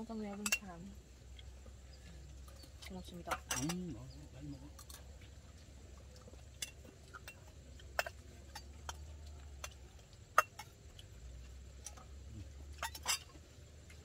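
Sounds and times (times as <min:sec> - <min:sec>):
utensils clicking against plates: 0:02.5 - 0:04.0, 0:12.7 - 0:13.4.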